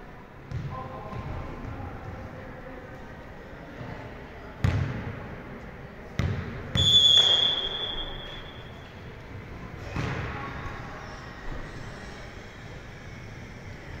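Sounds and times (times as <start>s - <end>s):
ball thuds with hall echo: 0.4s - 1.8s, 4.6s - 5.3s, 6.1s - 8.5s, 9.8s - 10.6s
referee's whistle blast: 6.8s - 8.7s.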